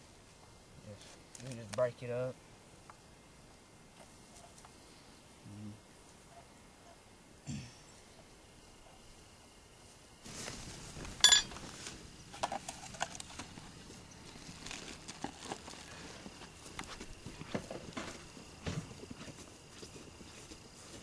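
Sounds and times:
rustling in dry grass: 0:09.8 - 0:21.0
metallic clink: 0:11.2 - 0:11.5.

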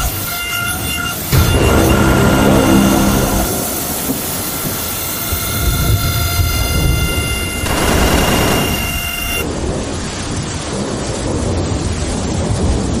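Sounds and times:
thin high whine: 0:00.0 - 0:09.4
rain hiss: 0:00.0 - 0:13.0
low rumbling thunder: 0:01.3 - 0:13.0.

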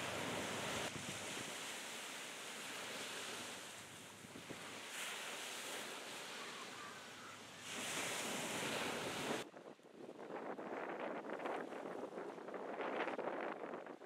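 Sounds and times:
wind on microphone: 0:00.0 - 0:01.8, 0:07.6 - 0:14.0
surf washing on shore: 0:00.0 - 0:14.0.

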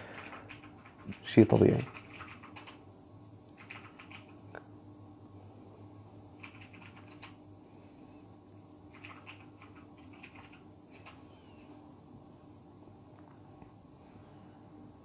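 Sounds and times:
low steady hum: 0:00.0 - 0:15.0
typing-like clicking: 0:00.1 - 0:02.8, 0:03.5 - 0:04.3, 0:06.4 - 0:07.4, 0:08.9 - 0:11.2.

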